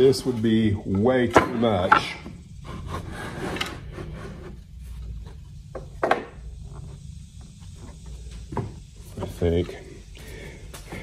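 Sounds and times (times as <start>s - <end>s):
lumber sliding on wood: 1.3s - 9.4s.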